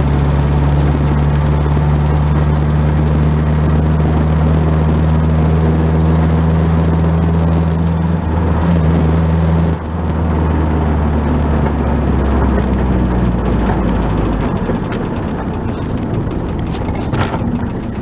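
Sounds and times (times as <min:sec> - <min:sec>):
diesel engine droning in car cabin: 0:00.0 - 0:18.0.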